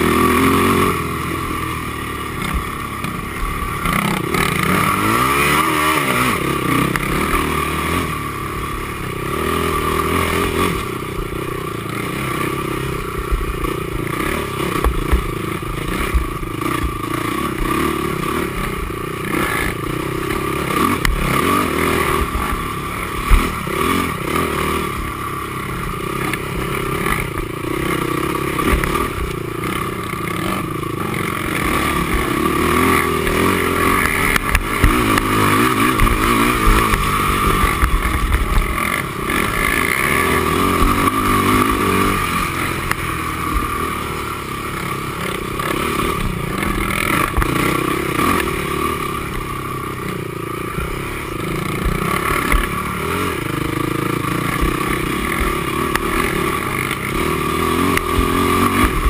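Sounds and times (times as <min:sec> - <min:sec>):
quad engine running hard: 0:00.0 - 0:59.0.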